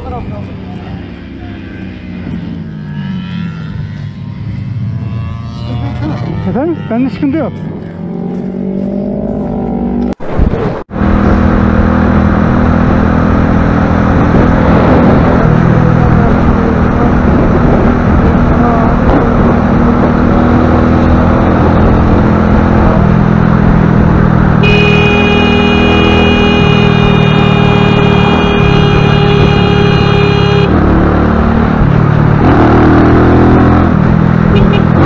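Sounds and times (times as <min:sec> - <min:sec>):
wind and road noise: 0:00.0 - 0:35.0
motorcycle engine running: 0:21.8 - 0:32.5, 0:33.8 - 0:35.0.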